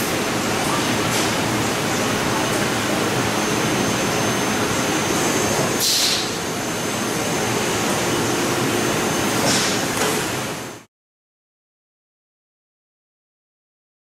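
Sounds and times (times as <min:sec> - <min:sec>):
laser cutter rushing noise: 0:00.0 - 0:10.9.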